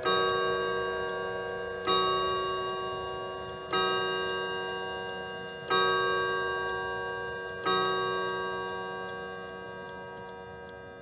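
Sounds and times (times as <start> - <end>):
clock chime strokes: 0.0 - 11.0.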